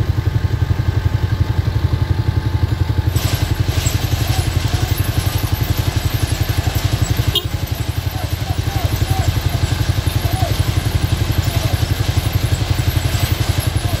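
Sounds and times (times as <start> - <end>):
diesel engine running: 0.0 - 14.0
hiss: 3.1 - 7.0.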